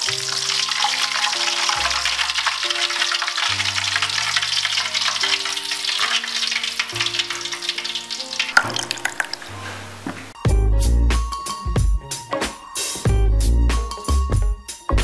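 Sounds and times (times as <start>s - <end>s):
oil crackling and sizzling: 0.0s - 10.5s.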